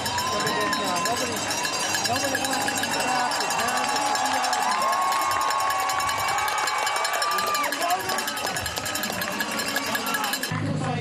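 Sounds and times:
cowbells ringing: 0.0 - 10.5
spectators cheering: 0.0 - 10.5.

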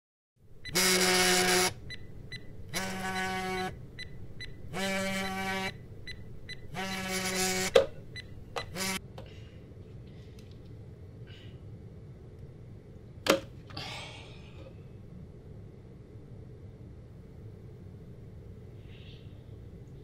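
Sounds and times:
phone vibrating against wood: 4.4 - 7.9.

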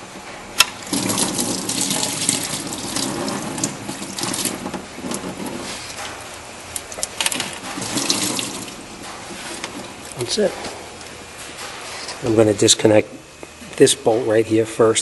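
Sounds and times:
liquid splashing into bucket: 0.8 - 5.4, 7.2 - 8.8.

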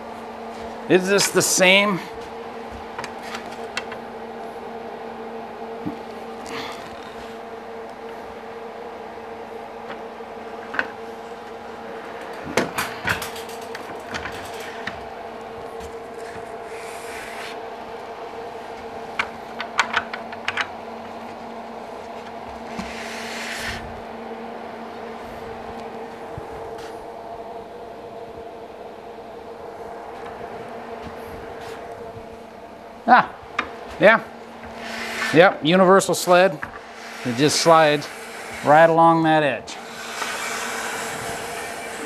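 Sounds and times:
steady low hum: 0.0 - 42.0
short sliding rubs: 22.7 - 23.9, 34.6 - 35.4, 36.8 - 38.9.

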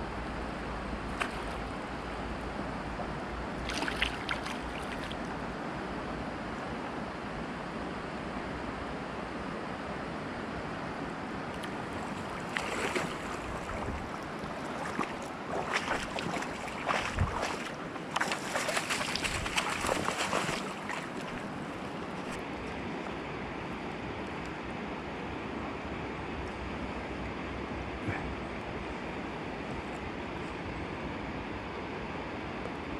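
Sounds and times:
wading steps splashing: 3.6 - 5.3, 11.6 - 22.4
river water rushing over stones: 11.7 - 22.4.

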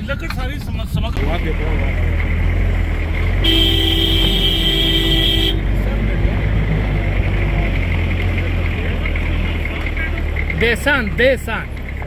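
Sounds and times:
rough-road rumble: 0.0 - 12.0
vehicle engine: 0.0 - 12.0
car horn blast: 3.4 - 5.7.

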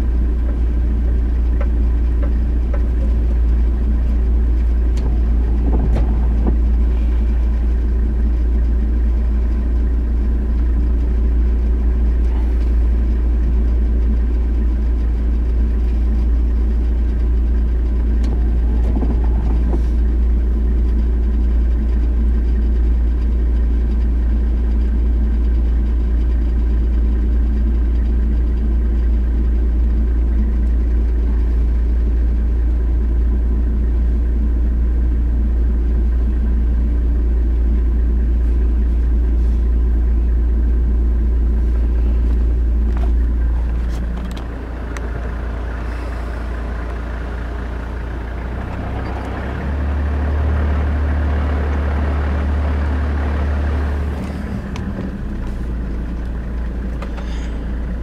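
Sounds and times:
vehicle engine deep rumble: 0.0 - 58.0.

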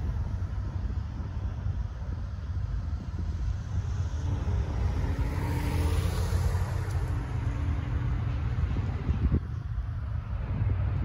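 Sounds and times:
steady low rumble: 0.0 - 11.0
car driving past: 3.8 - 9.4.

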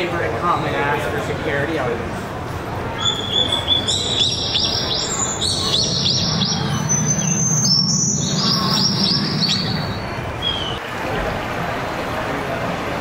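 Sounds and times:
steady low hum: 2.0 - 10.8
birds chirping and trilling: 3.0 - 10.8.

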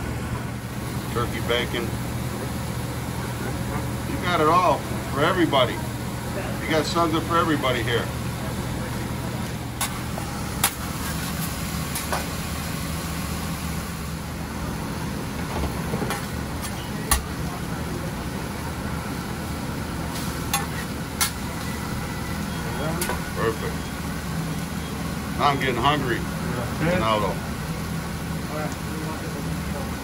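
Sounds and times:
food sizzling on a griddle: 9.8 - 14.0, 20.0 - 23.2.

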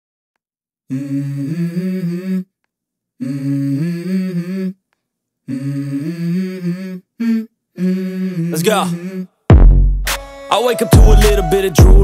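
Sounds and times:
low voice humming a melody: 0.9 - 2.5, 5.5 - 9.4.

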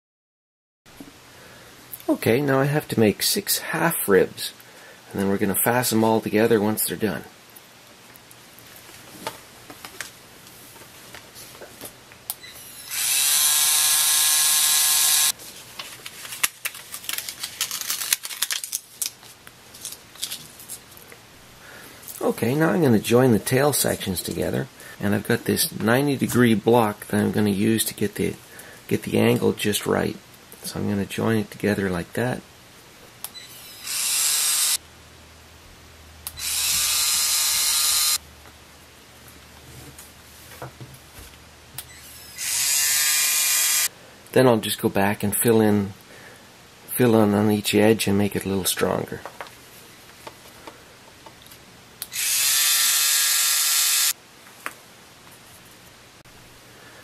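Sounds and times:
small motor whirring: 12.6 - 15.3, 33.5 - 34.8, 36.3 - 38.2, 42.0 - 43.9, 52.1 - 54.1.

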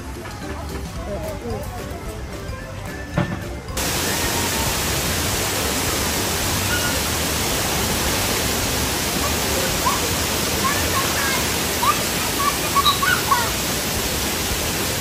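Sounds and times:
water rushing and splashing: 3.8 - 15.0.

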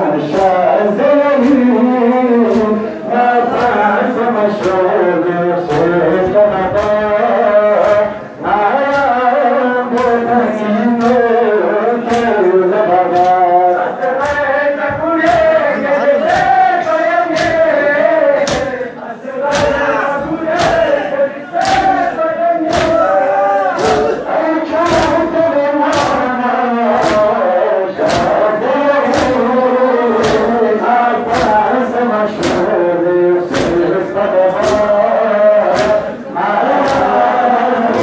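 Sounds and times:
men chanting: 0.0 - 38.0
hands slapping chests: 7.8 - 8.2, 9.9 - 10.3, 11.0 - 11.4, 12.0 - 12.4, 13.1 - 13.4, 14.0 - 15.6, 16.2 - 26.3, 26.9 - 27.4, 28.0 - 32.8, 33.5 - 33.9, 34.5 - 38.0.

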